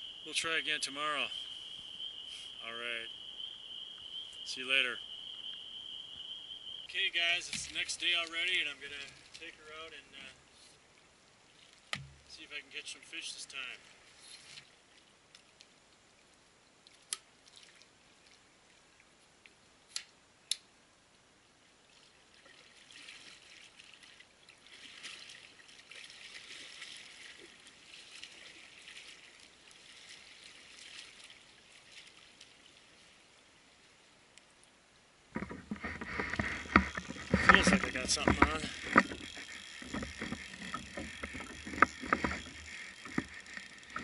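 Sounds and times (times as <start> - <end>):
lake water trickling and splashing: 0.0 - 20.2, 20.9 - 44.0
kayak knocks: 11.9 - 12.3, 35.3 - 44.0.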